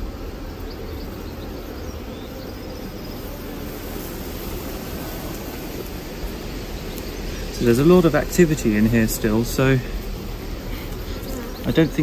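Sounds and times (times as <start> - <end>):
honeybees humming: 0.0 - 12.0.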